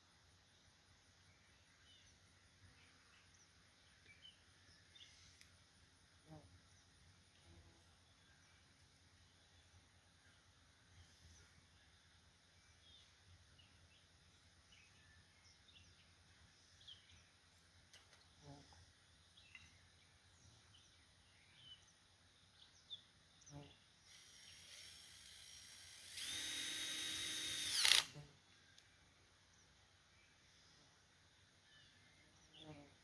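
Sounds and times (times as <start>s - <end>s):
power drill running: 24.1s - 28.1s.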